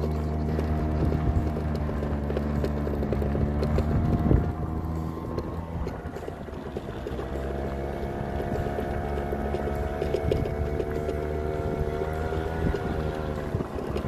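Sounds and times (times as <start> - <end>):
electric motor humming: 0.0 - 14.0
wheels rattling over rough ground: 0.0 - 14.0.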